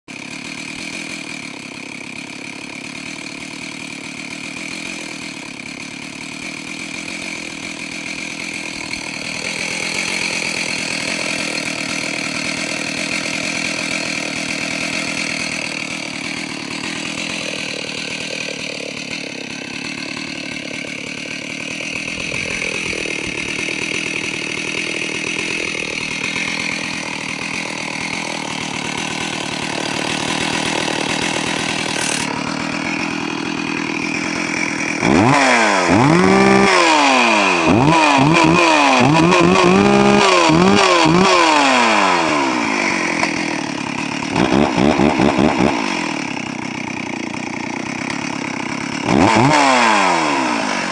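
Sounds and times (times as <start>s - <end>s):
chainsaw idling: 0.1s - 50.9s.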